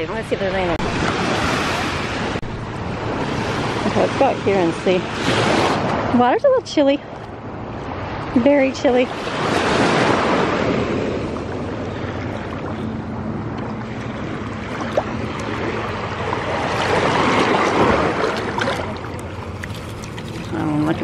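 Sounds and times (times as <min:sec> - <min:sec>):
surf washing over shells: 0:14.7 - 0:21.0.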